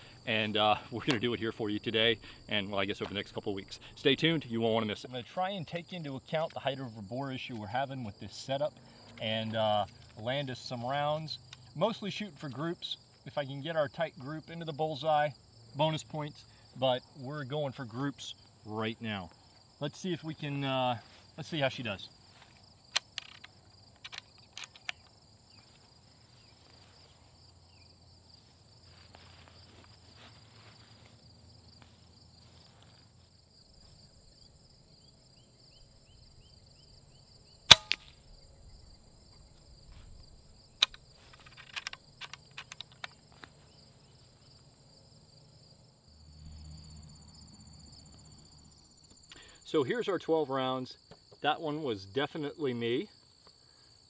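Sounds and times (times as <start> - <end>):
insects trilling: 0.0 - 54.0
rifle mechanical clicks: 22.9 - 25.1, 37.7 - 38.2, 40.8 - 43.2
air rifle shot crack: 37.7 - 38.2.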